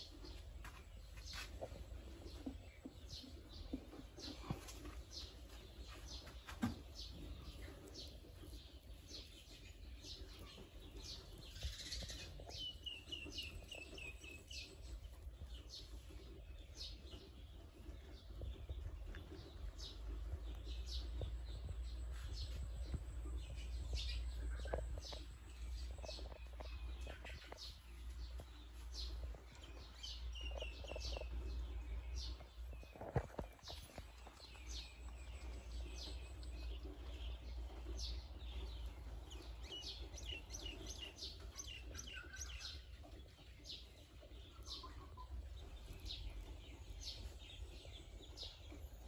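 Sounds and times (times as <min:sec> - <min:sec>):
small birds chirping: 0:00.0 - 0:49.0.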